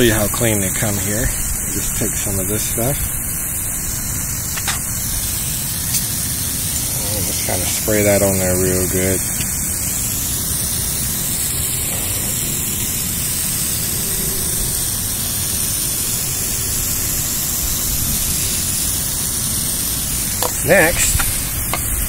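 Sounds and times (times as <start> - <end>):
pressure washer spraying concrete: 0.0 - 22.0.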